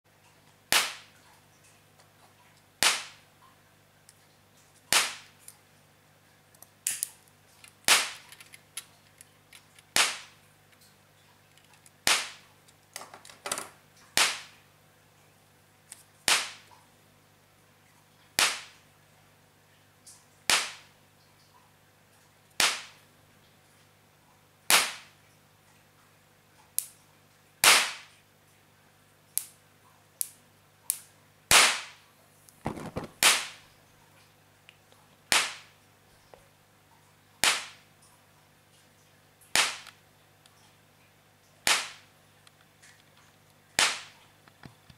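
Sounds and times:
high-voltage sparks cracking: 0:04.9 - 0:05.3, 0:07.9 - 0:08.3, 0:09.9 - 0:10.4, 0:12.1 - 0:12.4, 0:14.2 - 0:14.6, 0:31.5 - 0:32.0, 0:32.7 - 0:33.6, 0:35.3 - 0:35.7, 0:37.4 - 0:37.8, 0:39.6 - 0:39.9, 0:41.7 - 0:42.0, 0:43.8 - 0:44.2.

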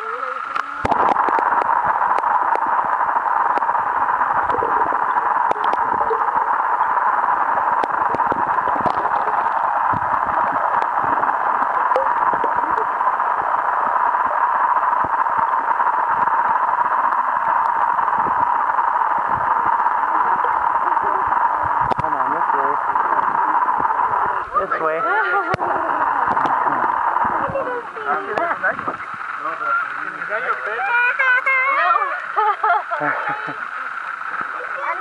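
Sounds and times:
muffled underwater hiss: 0:00.0 - 0:35.0
small underwater clicks and knocks: 0:00.5 - 0:03.8.

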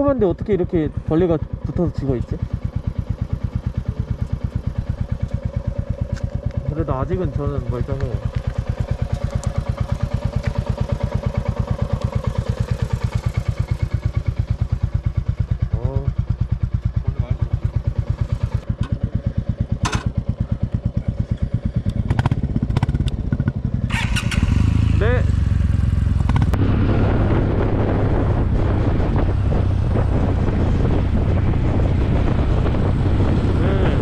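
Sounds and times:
motorcycle engine idling: 0:00.0 - 0:26.7
low engine rumble: 0:00.0 - 0:34.0.

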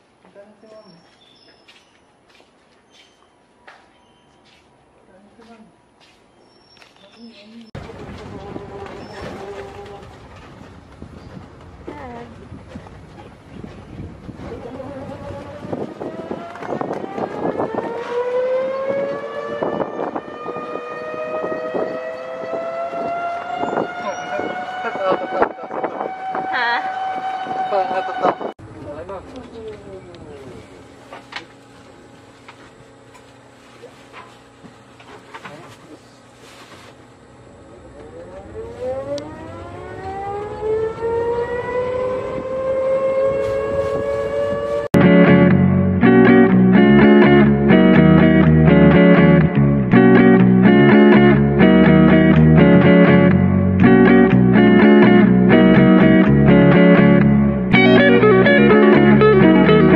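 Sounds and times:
tram drivetrain whine: 0:37.4 - 0:47.0.

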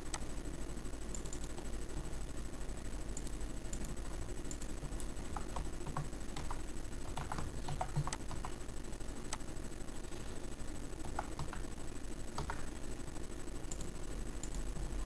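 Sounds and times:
computer keyboard typing: 0:03.2 - 0:08.6, 0:11.0 - 0:12.8.

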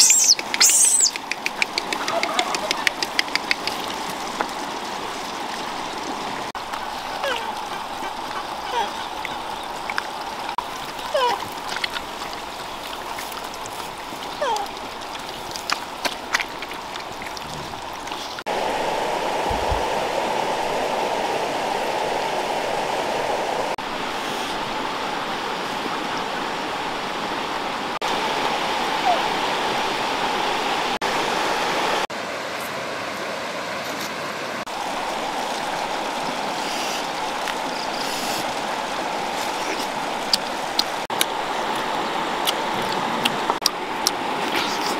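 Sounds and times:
sharp clicks: 0:00.0 - 0:03.8
river water over stones: 0:00.0 - 0:44.9.

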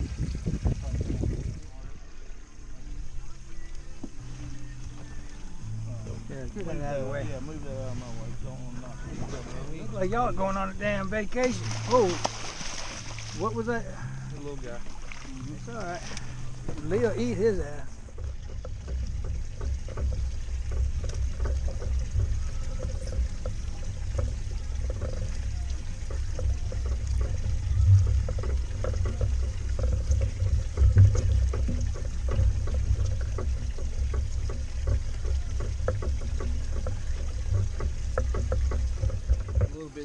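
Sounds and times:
steady low rumble: 0:00.0 - 0:40.0
water lapping against boat hull: 0:00.0 - 0:40.0
small knocks: 0:15.0 - 0:40.0.

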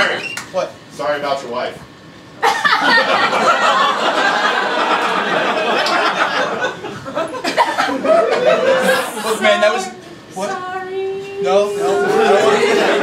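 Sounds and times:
audience laughing: 0:02.4 - 0:09.7, 0:11.9 - 0:13.0.

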